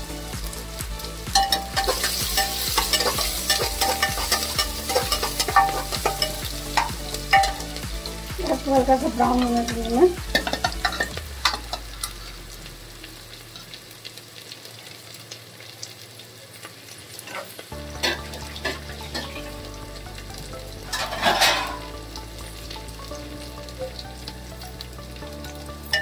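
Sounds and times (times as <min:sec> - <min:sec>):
onions sizzling in hot oil: 0:00.0 - 0:26.0
spatula scraping pot: 0:01.8 - 0:07.6, 0:20.9 - 0:21.9.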